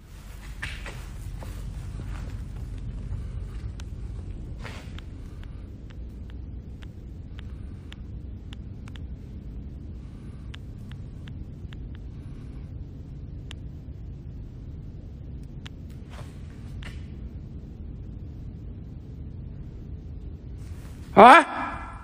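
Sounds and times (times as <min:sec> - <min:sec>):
outdoor background rumble: 0:00.0 - 0:21.1
faint sharp clicks: 0:04.9 - 0:09.1.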